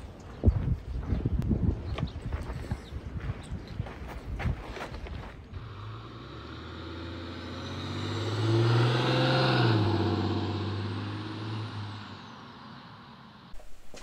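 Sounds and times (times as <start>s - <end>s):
vehicle engine passing by: 5.6s - 13.5s.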